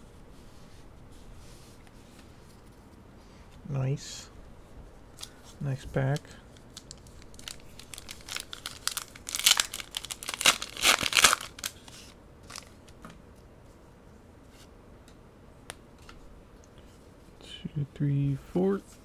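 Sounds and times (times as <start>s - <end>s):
foil wrapper crinkling and tearing: 6.0s - 12.8s.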